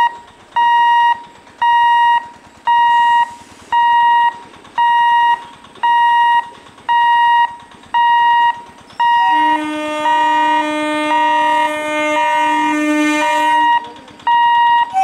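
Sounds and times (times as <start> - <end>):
level-crossing warning beeps: 0.0 - 15.0
train horn blast: 9.0 - 14.0.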